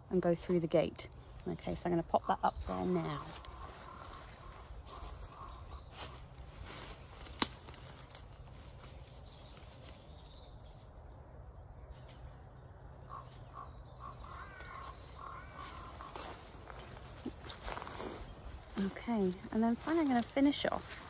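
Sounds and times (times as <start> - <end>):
leaves and twigs rustling: 0.0 - 21.0
bird chirps: 11.9 - 20.8.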